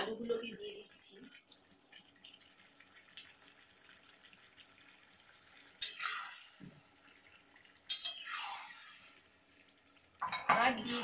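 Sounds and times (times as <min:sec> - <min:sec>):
metal spoon clinking on wok: 0:07.9 - 0:08.2, 0:10.2 - 0:11.0.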